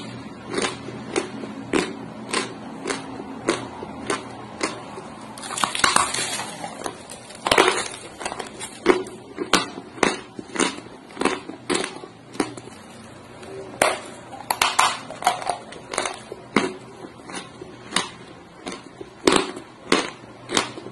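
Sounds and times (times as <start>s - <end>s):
chewing crunches of dry clay: 0.0s - 20.9s
clay crumbling: 5.4s - 16.4s.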